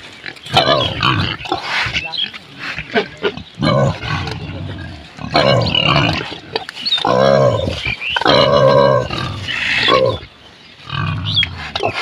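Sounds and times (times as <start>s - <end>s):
pigs grunting: 0.0s - 12.0s.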